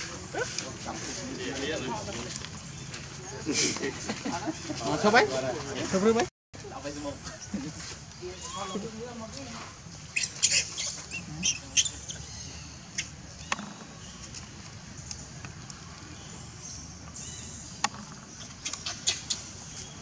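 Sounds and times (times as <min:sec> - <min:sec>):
baby monkey squeaking: 0:08.3 - 0:08.9, 0:10.1 - 0:13.2, 0:18.4 - 0:19.8.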